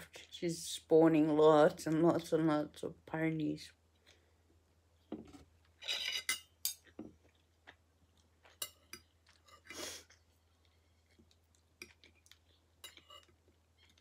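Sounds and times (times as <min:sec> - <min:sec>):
cutlery scraping a plate: 0:05.2 - 0:07.0, 0:08.5 - 0:09.8, 0:12.8 - 0:13.4
cutlery clinking on a plate: 0:05.2 - 0:07.1.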